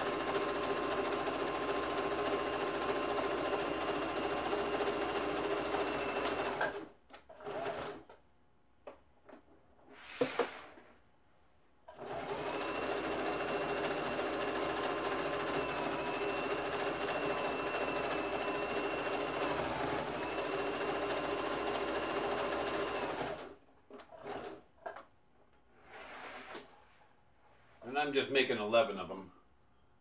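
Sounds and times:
sewing machine stitching: 0:00.0 - 0:08.2, 0:11.9 - 0:25.0.

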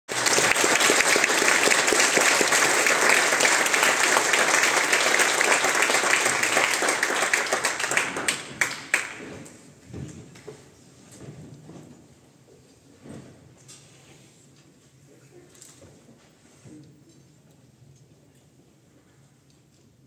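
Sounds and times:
audience applauding: 0:00.1 - 0:09.2.

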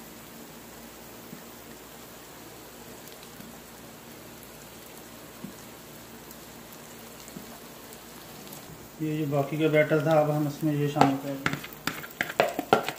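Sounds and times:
batter sizzling in oil: 0:00.0 - 0:12.9.

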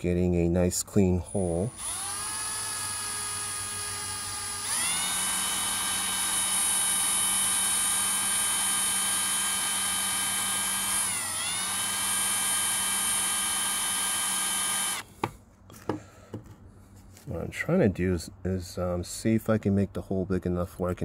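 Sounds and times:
power drill motor whine: 0:01.6 - 0:15.1.

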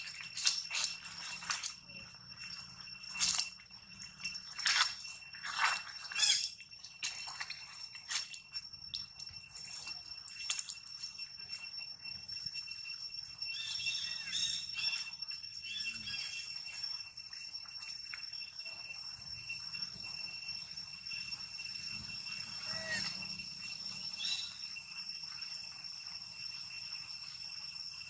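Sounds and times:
dry leaves rustling and crackling: 0:00.0 - 0:02.0, 0:02.6 - 0:03.6, 0:04.5 - 0:08.4
faint chirps: 0:00.0 - 0:27.6
high-pitched background drone: 0:00.0 - 0:28.0.

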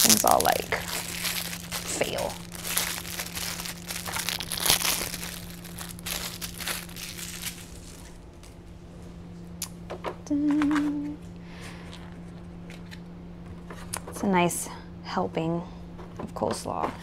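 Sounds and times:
plastic wrapper crinkling and tearing: 0:00.0 - 0:08.6
short low hum: 0:00.0 - 0:14.0.

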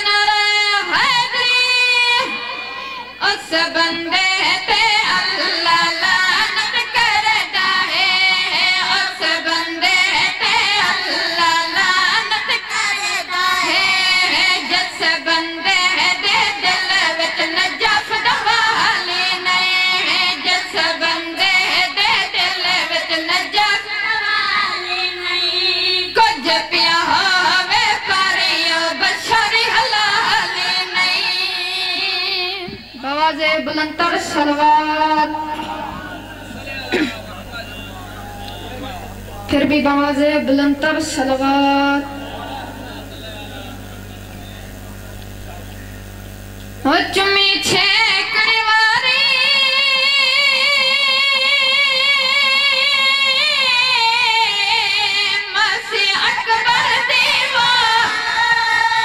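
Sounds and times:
boys singing a chant: 0:02.3 - 0:37.1.

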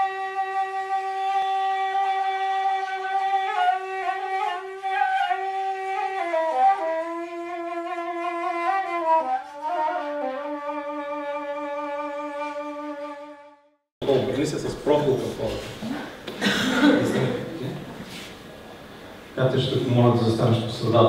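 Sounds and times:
solo wind instrument melody: 0:00.0 - 0:13.8.

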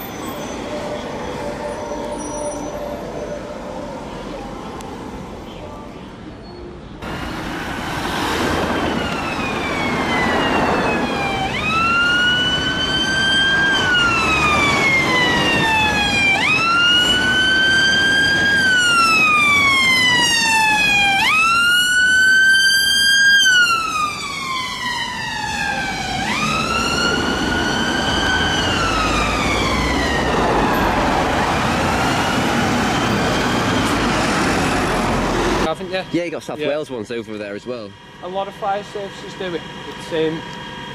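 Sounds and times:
ambulance siren wailing: 0:00.0 - 0:05.4, 0:07.0 - 0:38.2
road traffic noise: 0:00.0 - 0:40.9.

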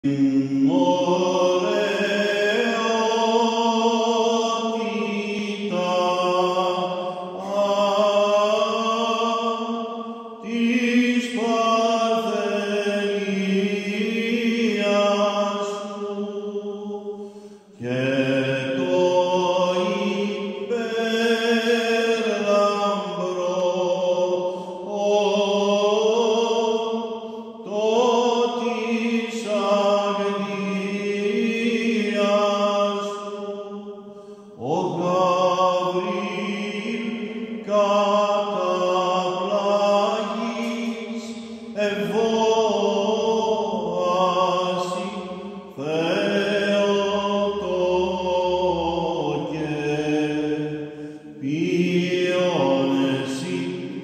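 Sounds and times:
singer breathing: 0:17.1 - 0:17.8, 0:24.4 - 0:24.9, 0:34.0 - 0:34.6, 0:41.3 - 0:41.8, 0:50.6 - 0:51.4.

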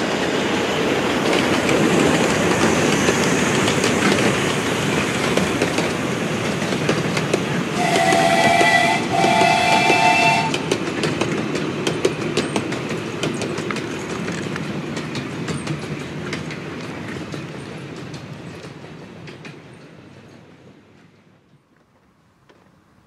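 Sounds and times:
train wheels clicking over rail joints: 0:00.0 - 0:23.0
train whistle: 0:07.7 - 0:10.8.

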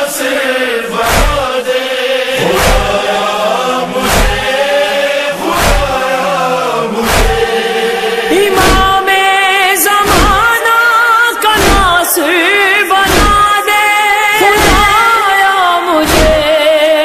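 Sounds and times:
voices chanting wordless chorus: 0:00.0 - 0:17.0
chest-beating thumps: 0:01.0 - 0:01.5, 0:02.4 - 0:03.1, 0:04.0 - 0:04.5, 0:05.5 - 0:06.0, 0:07.0 - 0:07.6, 0:08.4 - 0:09.0, 0:10.0 - 0:10.5, 0:11.6 - 0:12.0, 0:13.1 - 0:13.5, 0:14.6 - 0:15.0, 0:16.1 - 0:16.5.

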